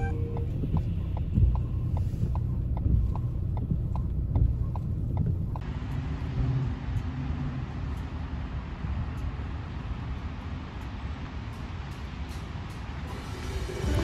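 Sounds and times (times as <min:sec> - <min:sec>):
turn-signal indicator clicking: 0:00.0 - 0:05.7
car road rumble: 0:00.0 - 0:14.0
even hiss: 0:13.0 - 0:14.0.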